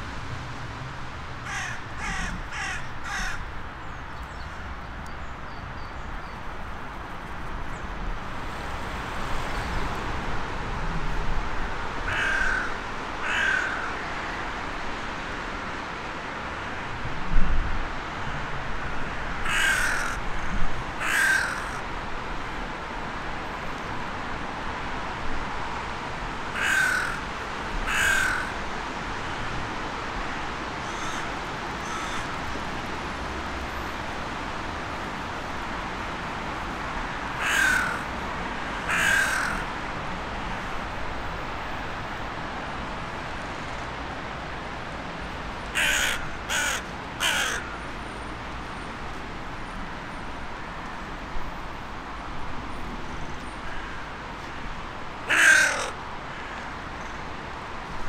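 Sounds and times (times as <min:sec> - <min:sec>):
crow cawing: 0:01.4 - 0:03.5, 0:12.1 - 0:14.4, 0:19.4 - 0:21.8, 0:26.5 - 0:28.6, 0:30.8 - 0:32.4, 0:37.4 - 0:38.1, 0:38.8 - 0:39.7, 0:45.7 - 0:47.8, 0:53.6 - 0:54.1, 0:55.2 - 0:56.8.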